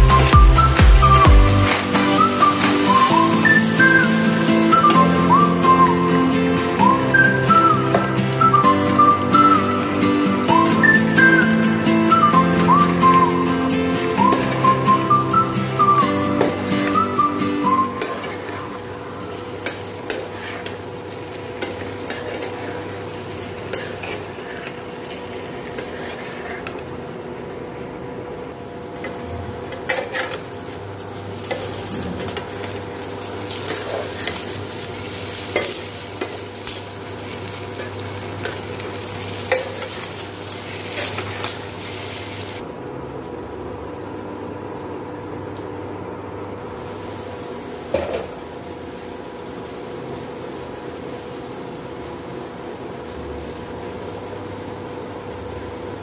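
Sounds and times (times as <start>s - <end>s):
potatoes sizzling in pan: 0.0s - 27.4s, 28.6s - 42.6s, 46.7s - 56.0s
spatula scraping pan: 20.1s - 20.8s, 21.6s - 26.8s.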